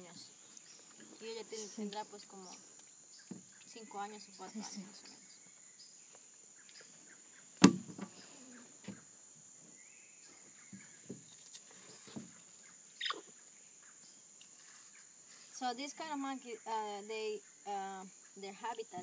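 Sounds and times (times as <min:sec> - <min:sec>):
insects droning: 0:00.0 - 0:19.0
faint knocks and rustles: 0:03.2 - 0:03.7, 0:07.6 - 0:12.8
sharp loud knock: 0:07.6 - 0:08.1.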